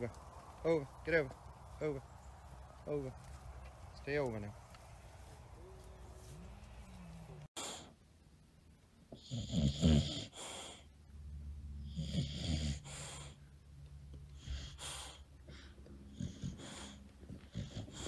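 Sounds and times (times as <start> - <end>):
dog snoring and snorting: 9.2 - 10.6, 11.9 - 13.1, 16.1 - 18.0.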